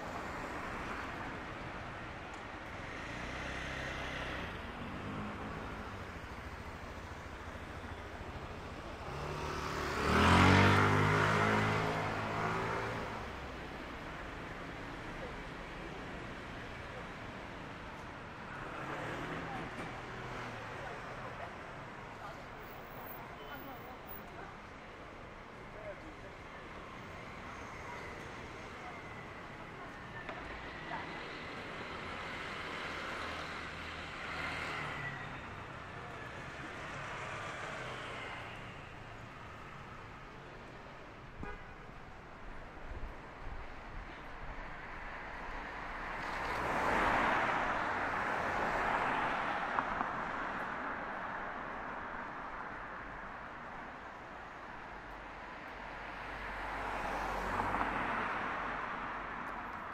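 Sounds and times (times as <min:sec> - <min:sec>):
city street background noise: 0:00.0 - 0:59.9
motor vehicle passing: 0:09.1 - 0:12.8.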